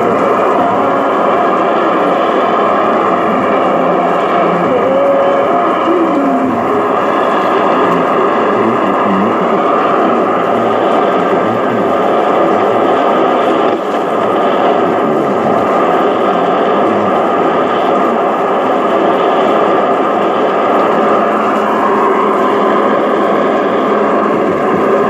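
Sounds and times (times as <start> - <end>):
garbled shortwave radio signal: 0.0 - 25.0
radio static: 0.0 - 25.0.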